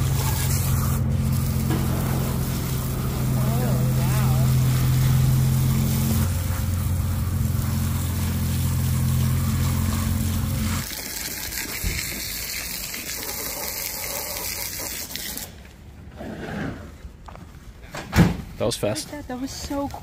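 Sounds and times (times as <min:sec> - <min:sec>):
engine running: 0:00.0 - 0:15.6.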